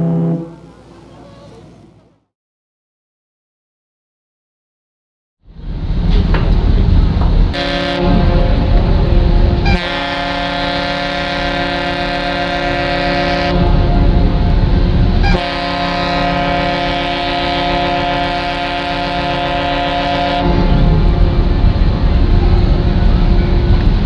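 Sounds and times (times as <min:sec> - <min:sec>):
ship's horn blasts: 0:00.0 - 0:01.9, 0:07.5 - 0:24.0
low rumble: 0:05.5 - 0:09.8, 0:13.5 - 0:16.6, 0:19.5 - 0:24.0.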